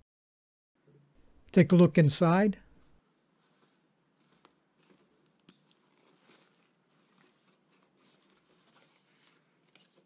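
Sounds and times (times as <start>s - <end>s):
soft fabric rustling: 2.8s - 10.0s.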